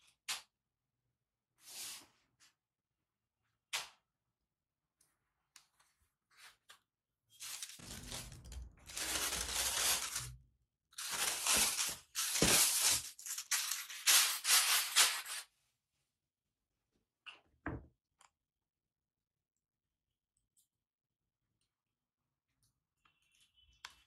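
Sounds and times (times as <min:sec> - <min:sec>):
tissue paper rustling and crinkling: 0:07.4 - 0:10.4, 0:11.0 - 0:15.5.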